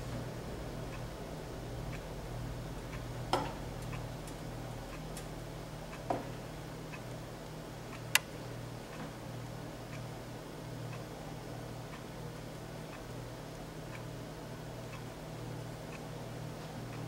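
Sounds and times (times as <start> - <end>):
steady low hum: 0.0 - 17.0
clock ticking: 2.8 - 5.3.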